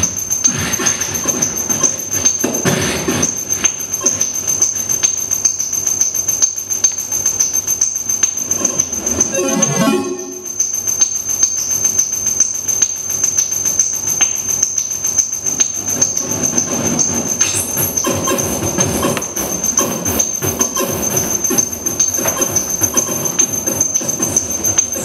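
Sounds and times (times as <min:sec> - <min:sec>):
steady high whine: 0:08.8 - 0:11.0.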